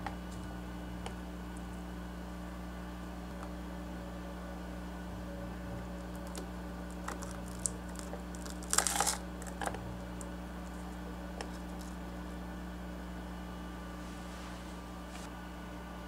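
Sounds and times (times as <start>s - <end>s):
steady low hum: 0.0s - 16.0s
crunching of fried food: 6.0s - 12.2s.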